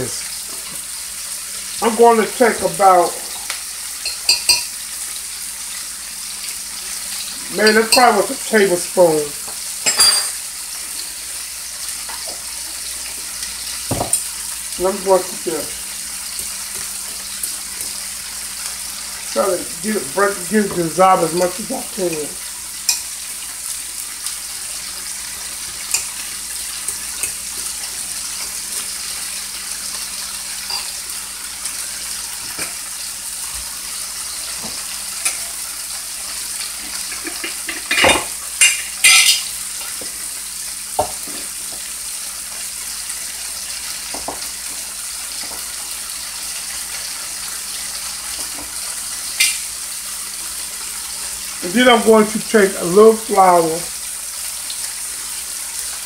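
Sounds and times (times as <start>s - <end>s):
meat sizzling in a frying pan: 0.0s - 56.0s
spoon clinking in glass cup: 4.0s - 4.7s, 9.8s - 10.4s
kitchen utensils knocking: 13.9s - 14.2s, 37.1s - 39.4s.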